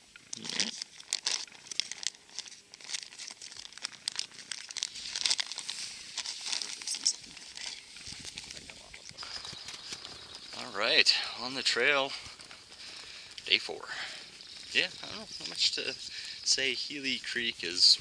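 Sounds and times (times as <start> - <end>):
plastic bag crinkling: 0.3 - 10.8.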